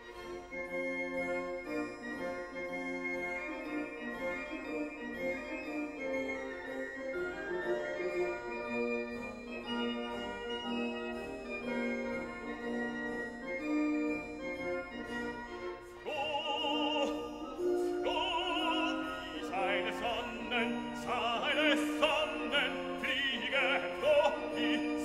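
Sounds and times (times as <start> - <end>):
operatic singing voice: 16.0 - 25.0.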